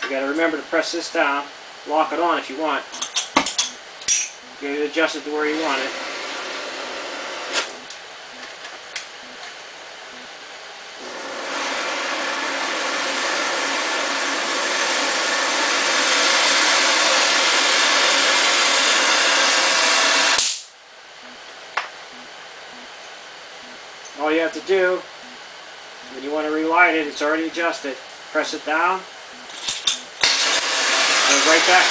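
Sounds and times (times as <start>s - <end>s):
torch flame hissing: 5.0s - 8.0s, 11.0s - 20.7s, 30.0s - 31.9s.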